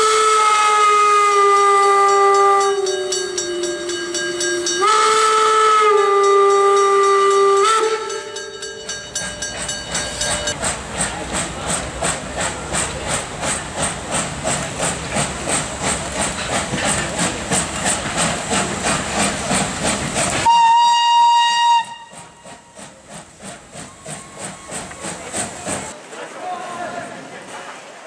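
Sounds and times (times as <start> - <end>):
steam whistle: 0.0 - 8.5, 20.4 - 22.6
steam hissing: 0.0 - 26.0
steam locomotive chuffing: 0.0 - 26.0.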